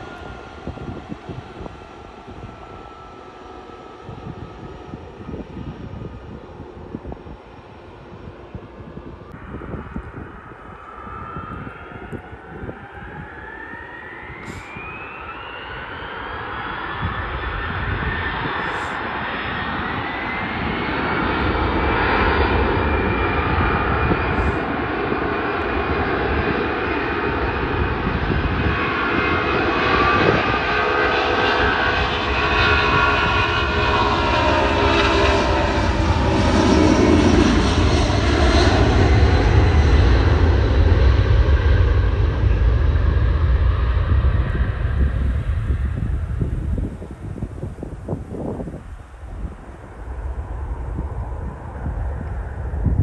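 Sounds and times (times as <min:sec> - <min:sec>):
jet engine whine: 0:00.0 - 0:53.0
deep engine rumble: 0:33.0 - 0:53.0.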